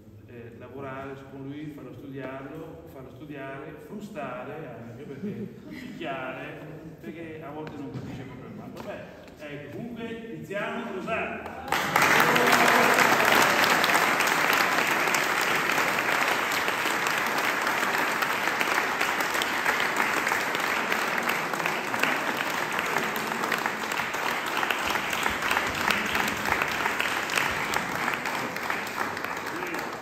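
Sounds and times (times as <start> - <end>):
crowd applauding: 11.4 - 30.0.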